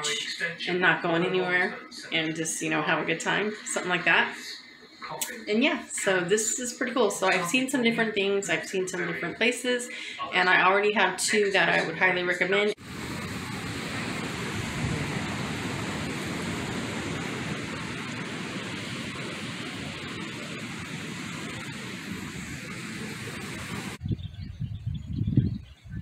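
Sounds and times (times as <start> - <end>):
ocean surf: 12.8 - 24.0
wind: 12.8 - 26.0
wind buffeting microphone: 12.8 - 26.0.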